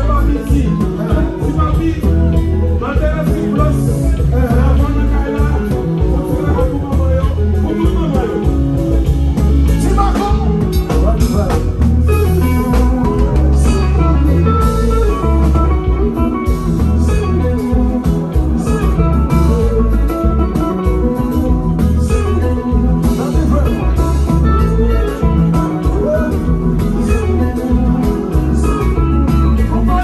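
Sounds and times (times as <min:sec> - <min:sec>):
electric guitar: 0:00.0 - 0:30.0
heavy bass line: 0:00.0 - 0:30.0
live band playing: 0:00.0 - 0:30.0.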